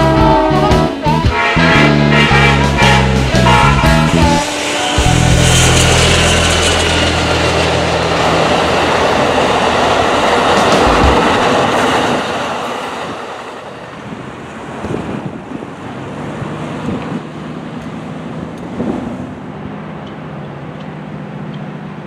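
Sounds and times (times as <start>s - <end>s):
train cars rolling on rails: 1.3s - 22.0s
wind-buffeted outdoor noise: 4.4s - 22.0s.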